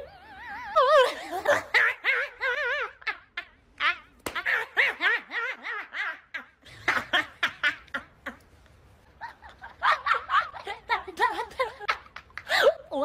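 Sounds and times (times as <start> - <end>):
woman laughing: 0.3 - 8.4, 9.2 - 13.0.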